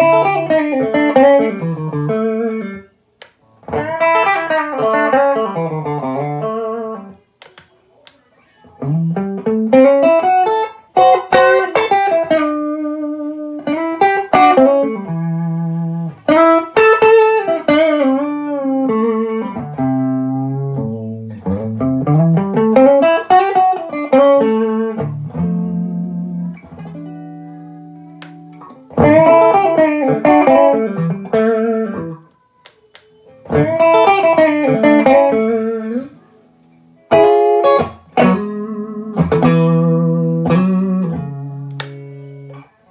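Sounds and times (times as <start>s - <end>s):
electric guitar playing: 0.0s - 7.6s, 8.7s - 42.9s.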